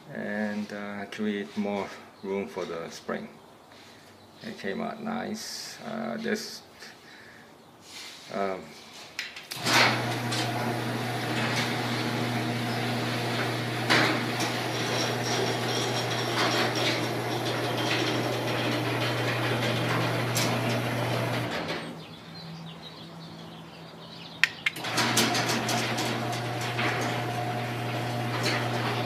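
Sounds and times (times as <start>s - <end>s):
garage door opener humming: 9.6s - 22.0s, 24.7s - 29.0s
garage door rolling open: 9.6s - 22.1s, 24.8s - 29.0s
sharp clicks: 24.4s - 24.9s.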